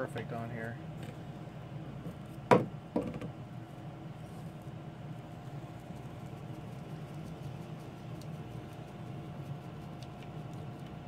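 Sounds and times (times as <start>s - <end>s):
plastic knocking on workbench: 2.5s - 3.3s.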